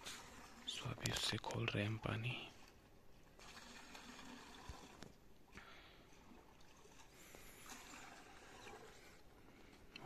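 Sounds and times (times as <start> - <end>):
water pouring into a bucket: 3.4 - 5.2, 6.1 - 9.2.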